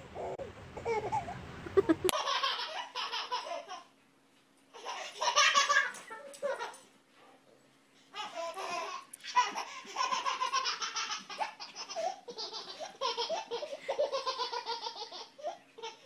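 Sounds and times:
baby belly-laughing: 0.2s - 3.9s, 8.2s - 16.0s.

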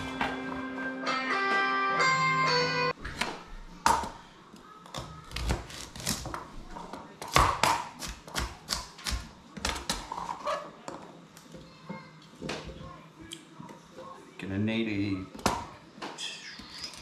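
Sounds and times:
knife chopping carrots on board: 7.2s - 10.1s.

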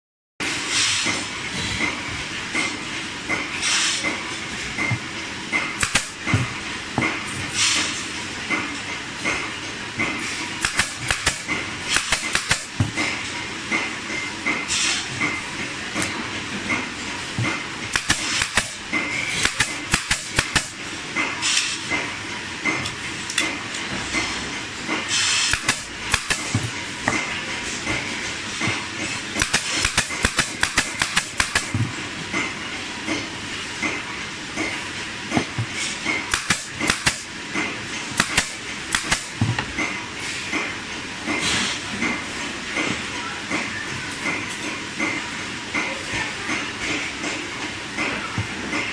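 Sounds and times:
staple gun firing: 5.8s - 6.2s, 10.6s - 12.7s, 17.9s - 18.8s, 19.4s - 20.8s, 25.5s - 26.5s, 29.4s - 31.7s, 36.3s - 37.3s, 38.2s - 39.4s.

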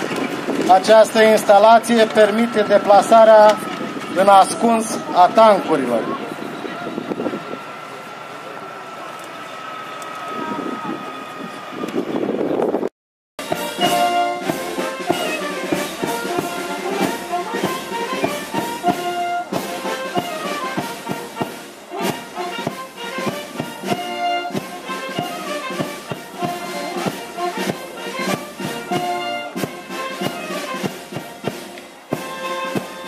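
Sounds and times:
brass notes: 0.0s - 11.0s, 13.4s - 33.0s
drum beats: 13.4s - 33.0s.

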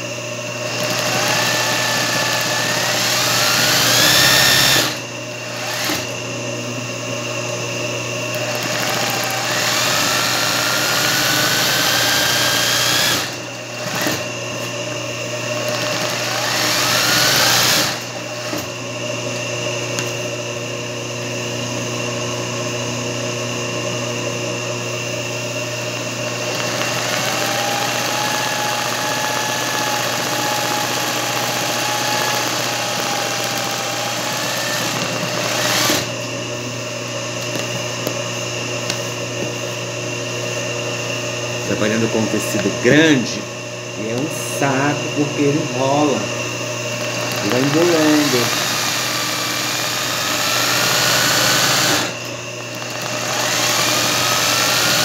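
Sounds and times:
sewing machine stitching: 0.6s - 6.1s, 8.4s - 14.3s, 15.6s - 18.7s, 26.5s - 36.1s, 47.2s - 52.2s.

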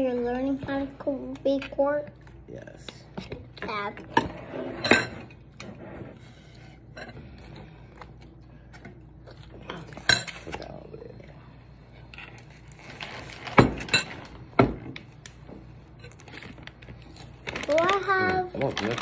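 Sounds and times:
dishes and cutlery clinking: 4.0s - 5.6s.

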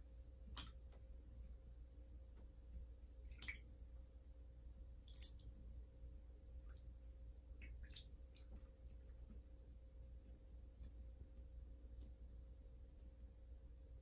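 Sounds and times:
cat paws splashing water: 0.4s - 1.1s, 3.2s - 4.0s, 5.0s - 5.7s, 6.6s - 9.5s.

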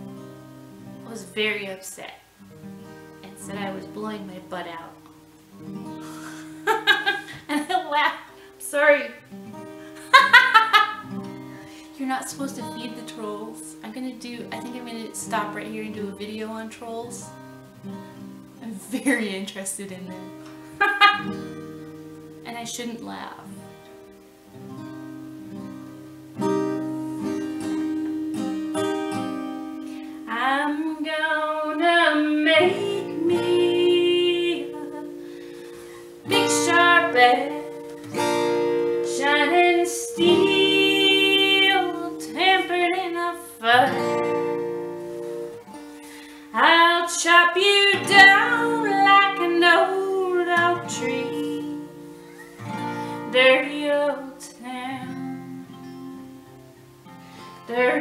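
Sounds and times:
acoustic guitar strummed: 0.0s - 1.7s, 2.3s - 58.0s
woman singing: 1.0s - 2.2s, 3.2s - 5.0s, 6.6s - 9.3s, 11.9s - 17.4s, 18.6s - 20.2s, 22.4s - 23.5s, 30.2s - 35.2s, 36.1s - 37.9s, 38.9s - 44.4s, 46.5s - 52.2s, 53.1s - 56.4s, 57.7s - 58.0s.

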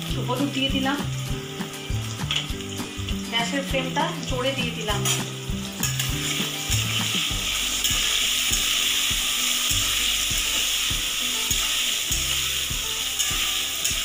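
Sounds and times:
potatoes sizzling in oil: 0.0s - 14.0s
spatula scraping metal pan: 11.4s - 14.0s.

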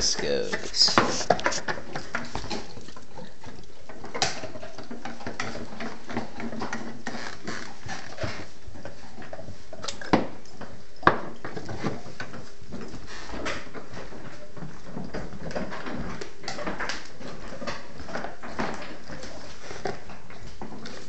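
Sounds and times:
dogs chewing bones: 0.0s - 21.0s.

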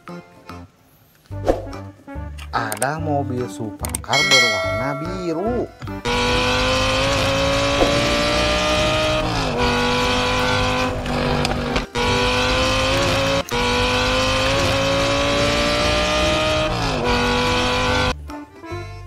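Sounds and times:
sports car engine accelerating: 5.9s - 18.2s.

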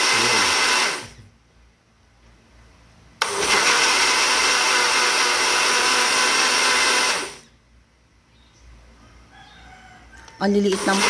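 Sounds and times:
bottle blender motor: 0.0s - 1.2s, 3.2s - 7.5s, 10.5s - 11.0s.

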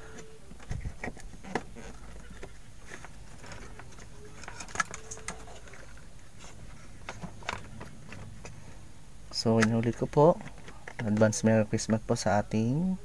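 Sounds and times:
plastic parts clicking: 0.6s - 6.0s.

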